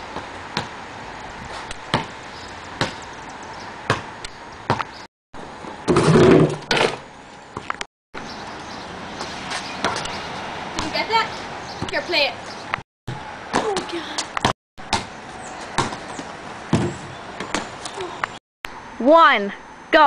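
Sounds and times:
basketball bouncing on pavement: 0.1s - 0.8s, 1.5s - 3.2s, 3.8s - 5.0s, 7.6s - 8.3s, 9.2s - 18.4s.

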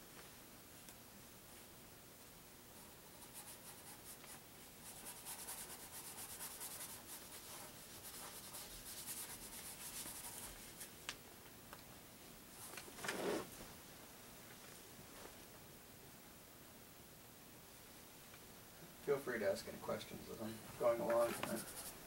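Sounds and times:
paintbrush scrubbing a surface: 3.0s - 10.9s, 20.9s - 22.0s.

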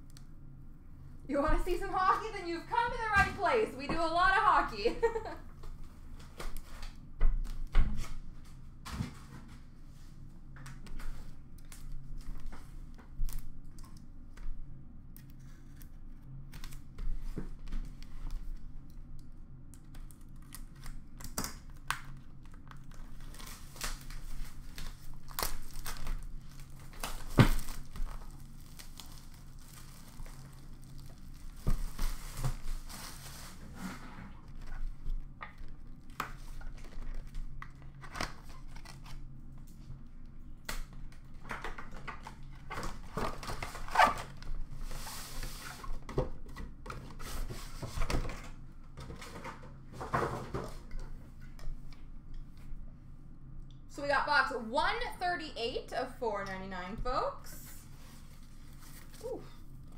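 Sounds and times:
shrink wrap tearing and crackling: 19.8s - 33.5s.

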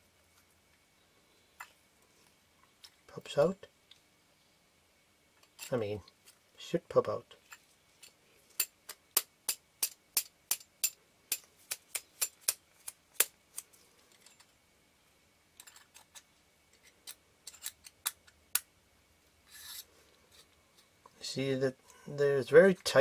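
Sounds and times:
brief rubbing: 19.4s - 20.5s.

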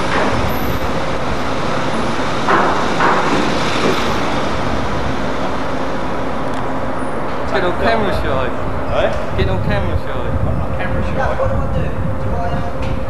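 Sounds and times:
loud machinery rumble: 0.0s - 13.0s.

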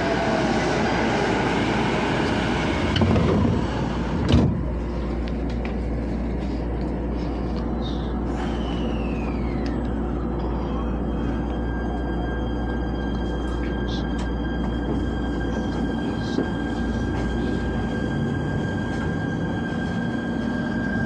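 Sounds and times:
station noise: 0.0s - 21.0s
train carriage hum: 0.0s - 21.0s
train sliding door closing: 2.2s - 4.7s.

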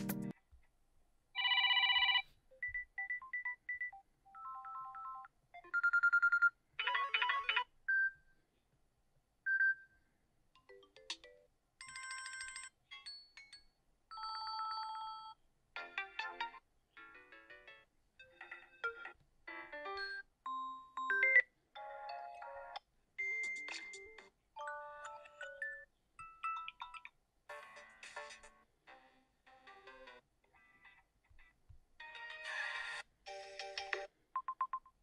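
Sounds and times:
phone ringtone beeps and chimes: 1.4s - 8.2s, 10.7s - 15.4s, 20.0s - 22.6s.

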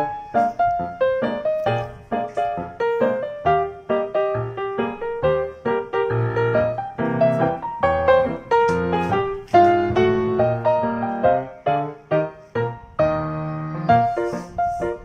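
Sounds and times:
piano melody: 0.0s - 15.0s.

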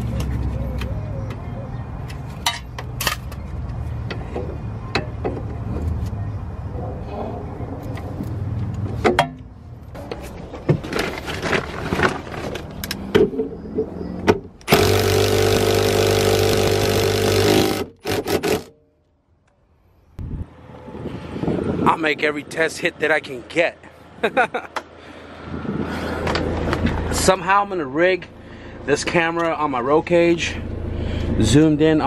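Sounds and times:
impact wrench running: 14.7s - 18.7s.

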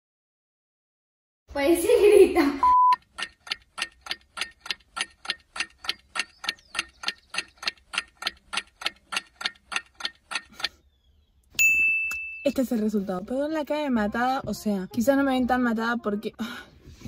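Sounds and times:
fast clock ticking: 2.9s - 10.8s.

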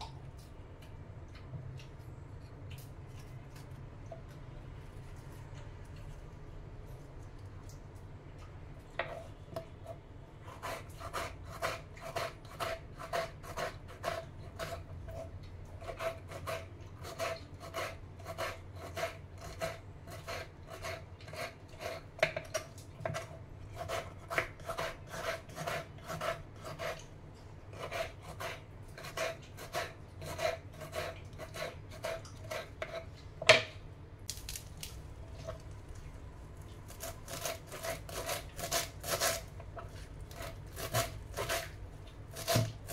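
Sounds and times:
knife chopping on wooden board: 42.3s - 42.9s.

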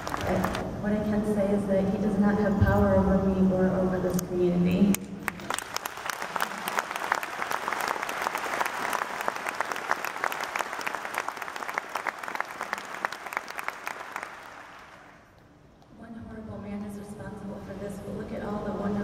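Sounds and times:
audience applauding: 0.0s - 0.6s, 5.2s - 15.2s.

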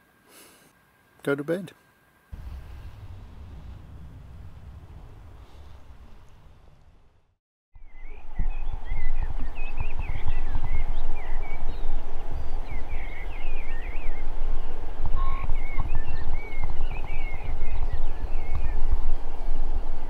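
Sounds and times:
wind buffeting microphone: 2.4s - 20.0s
small birds chirping: 7.8s - 19.1s.

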